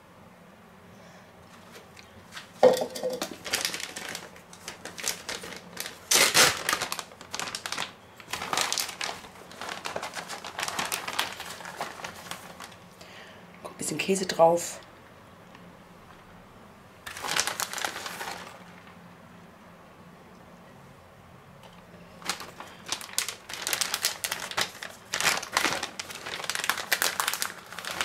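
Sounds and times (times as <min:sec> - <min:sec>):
plastic bag crinkling: 0:02.4 - 0:12.9, 0:17.0 - 0:19.0, 0:22.1 - 0:28.0.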